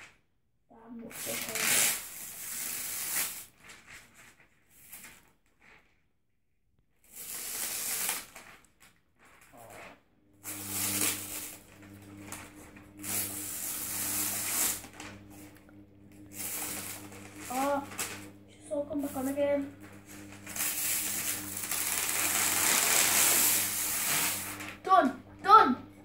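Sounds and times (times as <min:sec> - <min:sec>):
paper rustling and crinkling: 0:03.1 - 0:06.0
low steady hum: 0:10.2 - 0:26.0.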